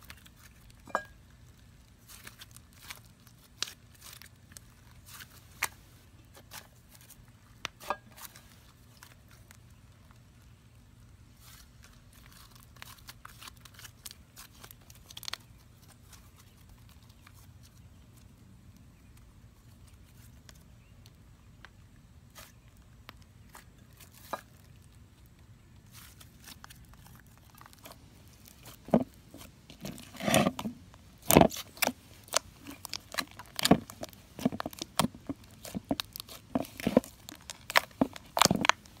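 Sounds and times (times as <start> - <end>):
slime squishing and popping: 31.2 - 39.0.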